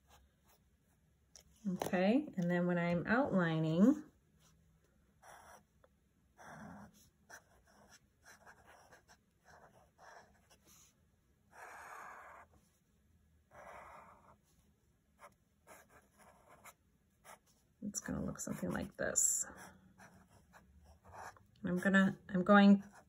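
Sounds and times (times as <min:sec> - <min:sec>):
marker scratching on paper: 0:05.2 - 0:05.7, 0:06.4 - 0:10.9, 0:11.5 - 0:12.7, 0:13.5 - 0:14.6, 0:15.2 - 0:21.4.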